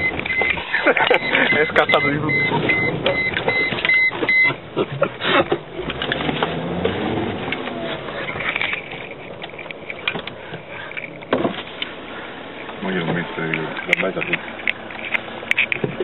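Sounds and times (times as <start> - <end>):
short beeps: 0.0 - 4.6
knocks and rattles of car body: 0.0 - 7.0, 8.3 - 12.0, 15.6 - 16.0
car engine running: 0.0 - 16.0.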